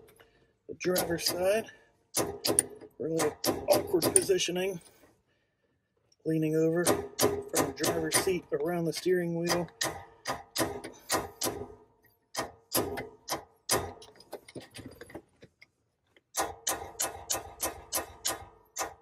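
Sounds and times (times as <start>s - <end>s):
hammer striking metal pin: 2.2s - 4.4s.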